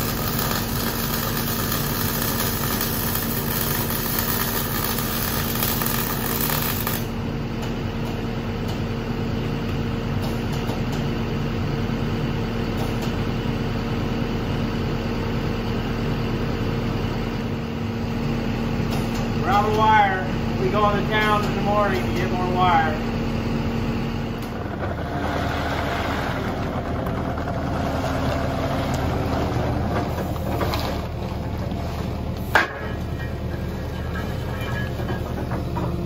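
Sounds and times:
welding arc crackling hiss: 0.0 - 7.2
machine hum: 0.0 - 36.0.

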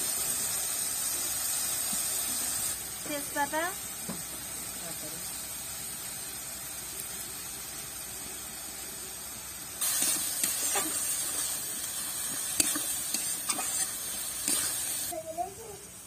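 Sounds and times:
food sizzling in hot oil: 0.0 - 16.0
metal spatula scraping a pan: 9.8 - 15.0.

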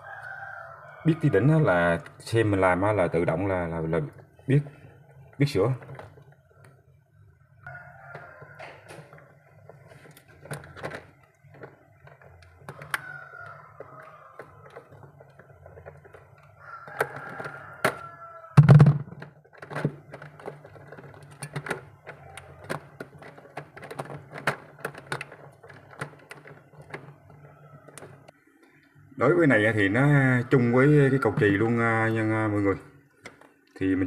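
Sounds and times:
loud thump: 18.6 - 19.1.

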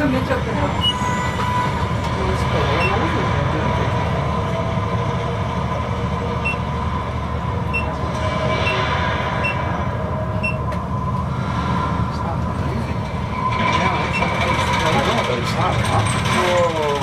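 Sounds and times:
constant hum: 0.0 - 17.0
elevator rumble and rushing: 0.0 - 17.0.

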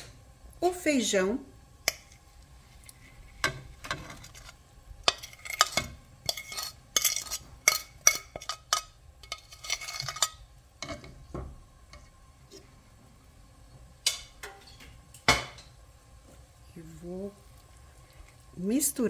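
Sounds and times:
utensils scraping and clinking: 2.8 - 11.2.

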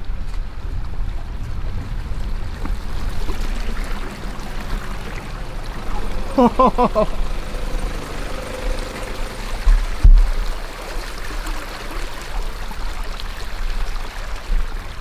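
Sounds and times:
engine running low: 0.0 - 12.7
water running and trickling: 0.0 - 15.0
quick pitched notes: 3.4 - 10.8.

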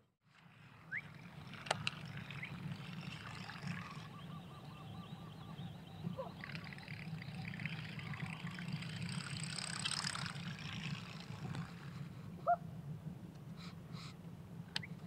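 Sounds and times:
steady low hum: 0.0 - 15.0
fishing reel line whirring: 0.3 - 12.3
fishing reel clicks: 1.5 - 2.6, 8.3 - 11.8.

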